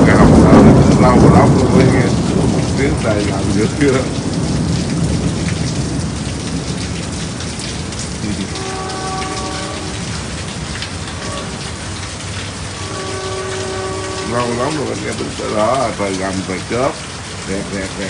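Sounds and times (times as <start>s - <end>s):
heavy rain pouring: 0.0s - 18.0s
thunder rumble: 0.0s - 18.0s.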